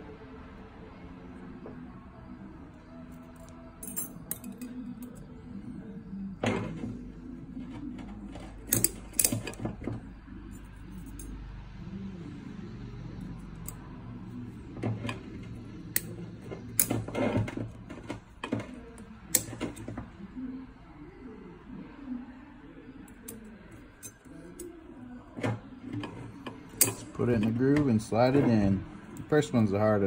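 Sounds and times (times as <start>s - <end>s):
low steady hum: 0.0s - 30.0s
piston rings clicking and scraping: 7.7s - 9.7s, 14.9s - 19.9s.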